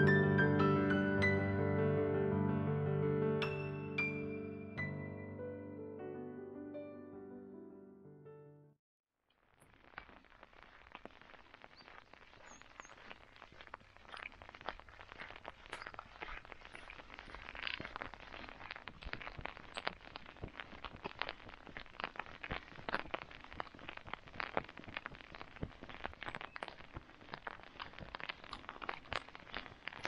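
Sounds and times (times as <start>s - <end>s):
footsteps crunching on gravel: 9.7s - 30.0s.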